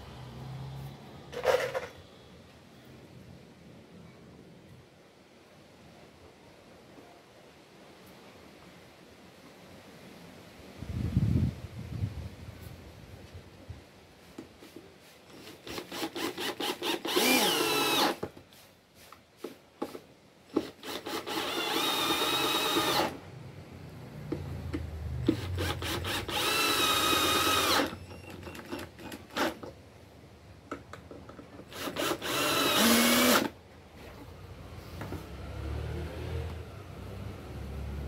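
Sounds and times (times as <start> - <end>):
drill motor whine: 15.3 - 18.2, 20.8 - 23.2, 25.3 - 28.5, 31.7 - 33.5
drill trigger pulses: 15.3 - 18.2, 20.6 - 23.2, 25.2 - 29.6, 31.7 - 33.5
handling clicks and knocks: 30.6 - 31.7.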